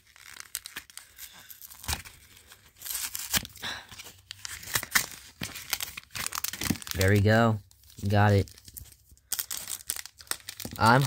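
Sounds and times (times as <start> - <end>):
cardboard being torn by hand: 2.8 - 3.6.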